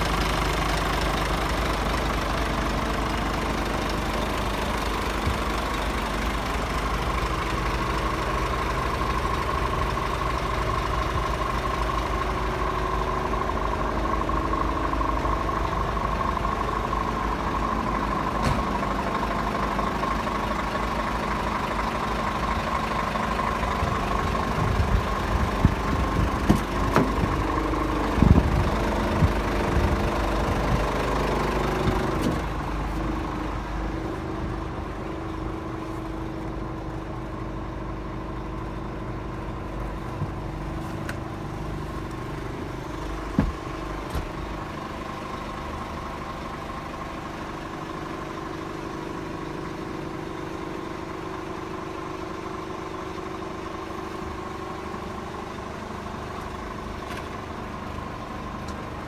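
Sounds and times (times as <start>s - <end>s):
diesel truck engine idling: 0.0s - 59.0s
sharp engine knocks: 18.4s - 18.8s, 25.6s - 27.4s, 43.1s - 44.5s.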